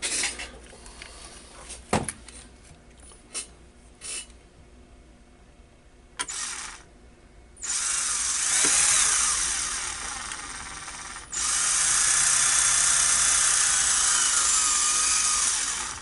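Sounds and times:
cordless drill whining: 6.2s - 6.9s, 7.6s - 16.0s.

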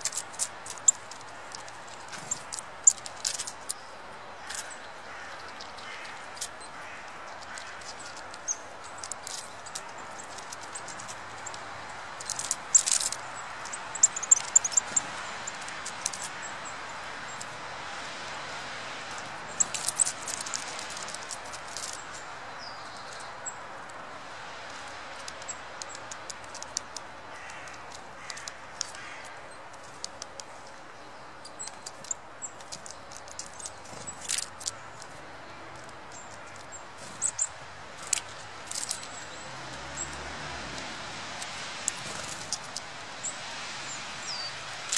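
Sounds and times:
small birds chirping: 0.0s - 44.9s
sharp clicks: 24.6s - 30.8s.

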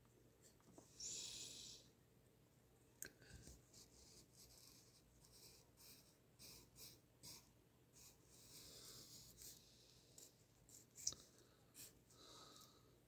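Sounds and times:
pencil scratching on paper: 3.7s - 11.0s.

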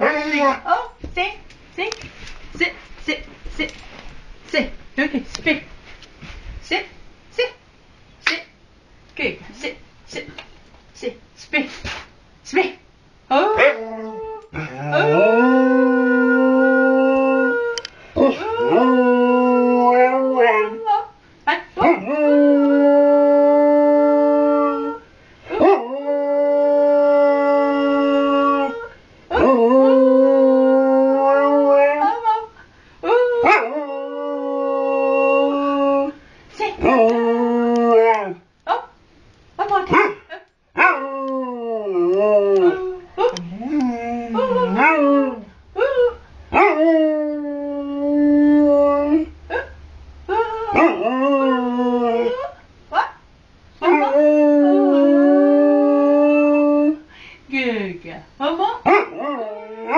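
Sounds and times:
dog howling: 13.4s - 21.0s, 40.8s - 49.3s, 50.3s - 52.5s, 53.8s - 57.0s.

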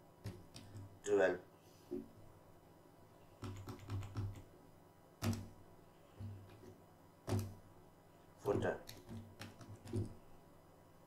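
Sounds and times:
keyboard typing: 0.2s - 1.0s, 3.4s - 4.5s, 5.2s - 5.5s, 8.4s - 10.2s.

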